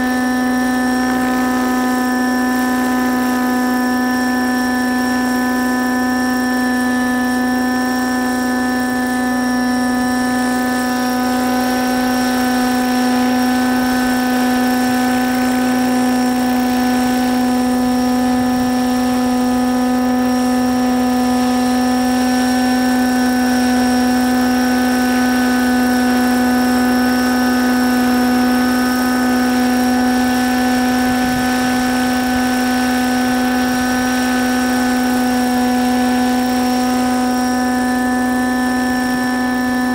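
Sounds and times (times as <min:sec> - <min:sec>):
model helicopter hovering whine: 0:00.0 - 0:39.9.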